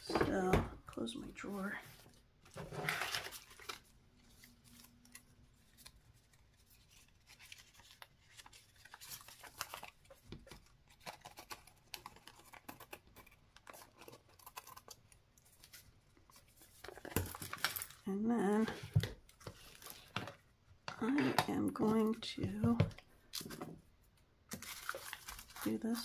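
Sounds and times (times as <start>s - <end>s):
scissors snipping paper: 8.8s - 15.1s.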